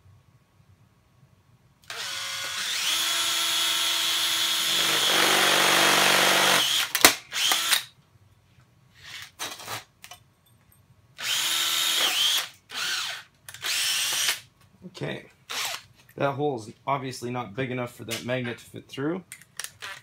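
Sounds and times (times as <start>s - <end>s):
cordless drill drilling sheet metal: 1.8s - 7.9s, 11.2s - 14.5s, 15.5s - 15.9s.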